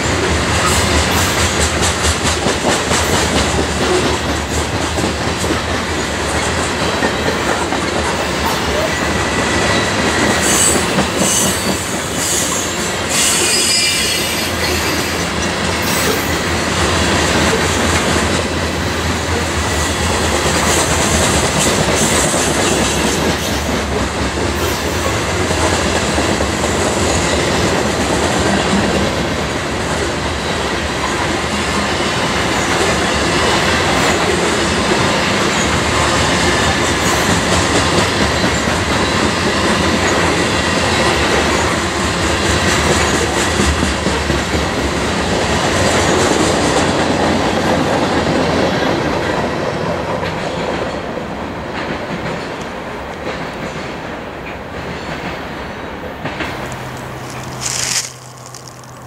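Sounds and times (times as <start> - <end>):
freight train rolling past: 0.0 - 59.0
wheels clacking over rail joints: 31.0 - 59.0.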